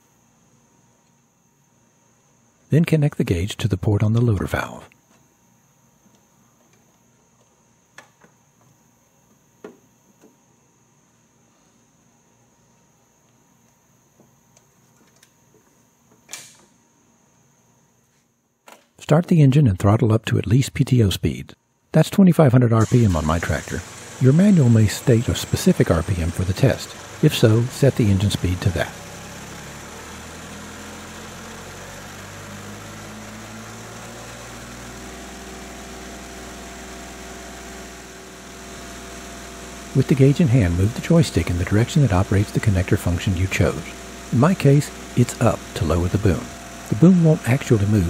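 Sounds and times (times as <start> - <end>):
tractor diesel engine running: 22.8 - 48.0.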